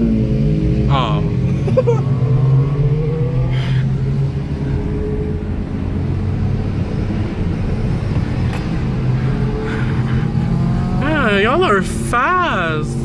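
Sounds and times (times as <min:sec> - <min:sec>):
car engine pulling: 0:00.0 - 0:13.0
low road rumble: 0:00.0 - 0:13.0.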